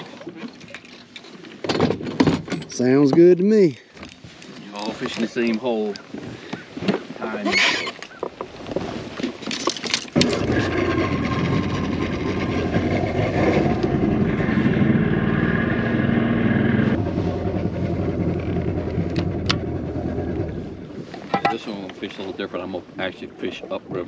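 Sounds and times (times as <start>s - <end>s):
outboard motor running: 10.2s - 21.3s.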